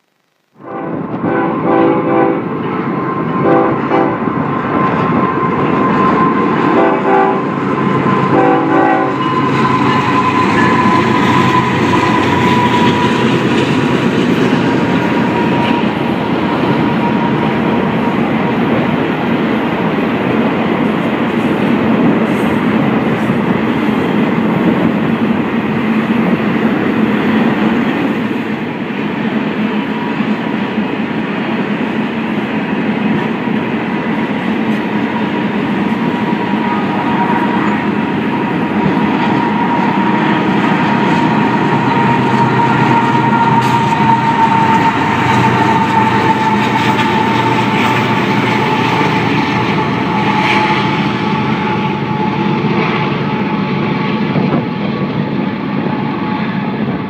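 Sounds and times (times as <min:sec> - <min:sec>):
wheels rumbling on rail: 0:00.5 - 0:57.0
train horn: 0:00.6 - 0:18.8, 0:34.7 - 0:54.8.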